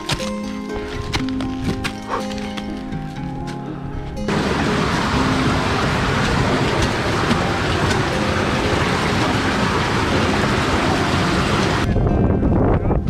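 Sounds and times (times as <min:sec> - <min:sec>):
meltwater rushing through ice: 0:04.3 - 0:11.9.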